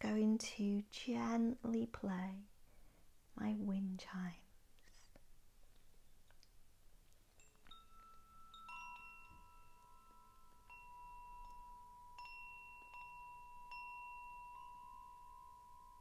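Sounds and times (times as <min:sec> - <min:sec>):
wind chime ringing: 0:07.4 - 0:16.0.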